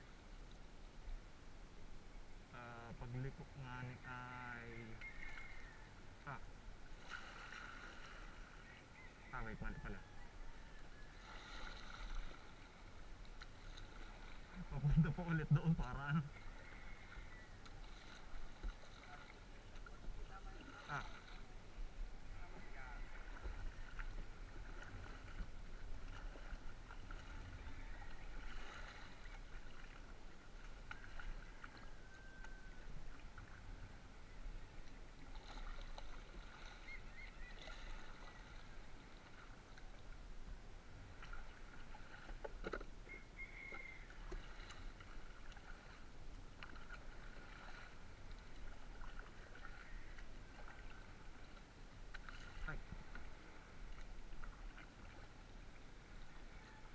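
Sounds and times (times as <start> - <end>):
water lapping at hull: 2.5 - 56.9
water sloshing and dripping: 10.6 - 33.9, 34.6 - 40.2, 40.9 - 56.9.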